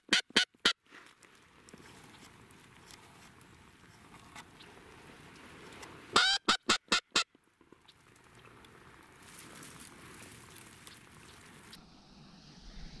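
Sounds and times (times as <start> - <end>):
duck quacking: 6.2 - 7.3.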